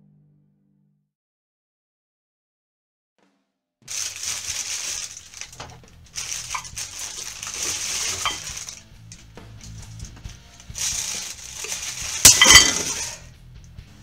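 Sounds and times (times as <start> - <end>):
plastic bag rustling: 3.9 - 13.2.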